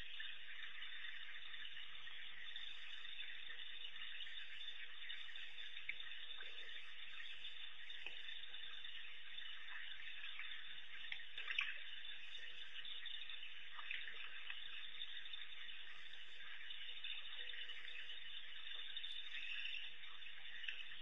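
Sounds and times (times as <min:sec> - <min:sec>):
faint clicks: 0:05.0 - 0:15.0.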